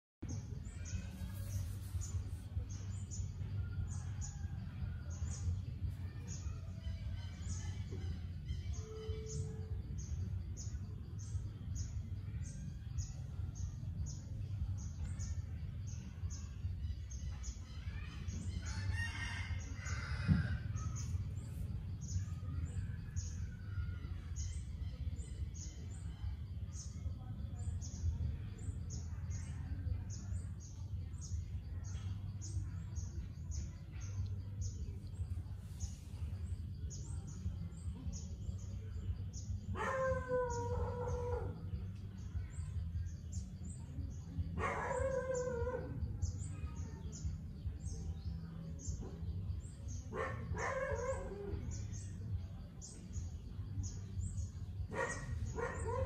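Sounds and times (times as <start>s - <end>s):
rooster crowing: 18.6s - 20.6s.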